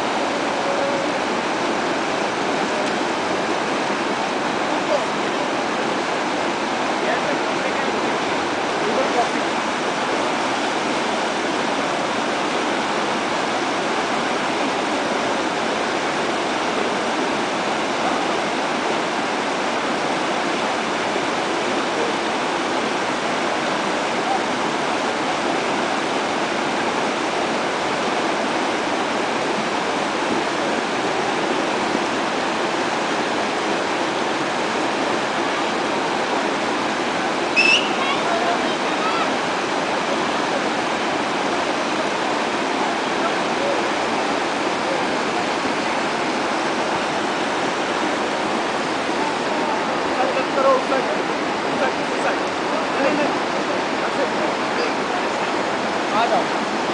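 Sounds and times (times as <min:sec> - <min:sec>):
river rushing over stones: 0:00.0 - 0:56.9.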